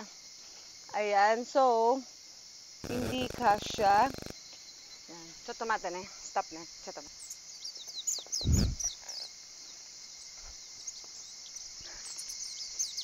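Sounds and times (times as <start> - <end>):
insects droning: 0.0 - 13.0
small birds chirping: 2.8 - 13.0.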